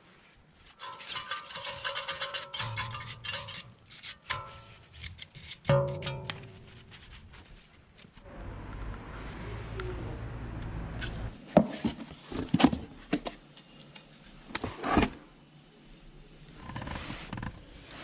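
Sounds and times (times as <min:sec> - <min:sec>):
low hum: 0:08.2 - 0:11.4.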